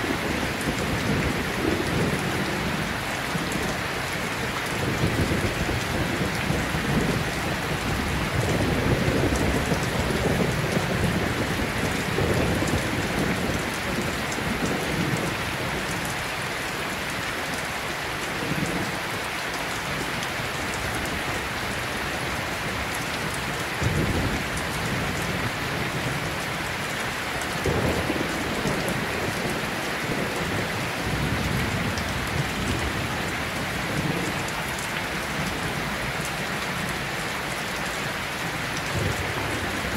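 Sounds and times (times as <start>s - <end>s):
steady rain: 0.0s - 39.9s
thunder rumbling: 27.6s - 34.7s.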